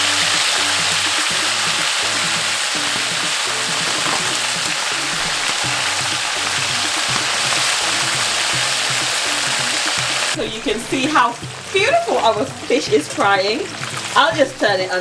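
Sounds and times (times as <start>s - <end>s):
background music with a beat: 0.0s - 14.9s
fish sizzling in hot oil: 0.0s - 15.0s.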